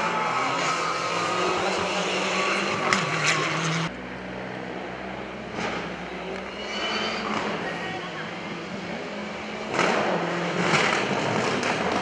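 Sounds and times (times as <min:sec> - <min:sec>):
distant car engine: 0:00.0 - 0:12.0
sharp engine pops: 0:09.7 - 0:12.0.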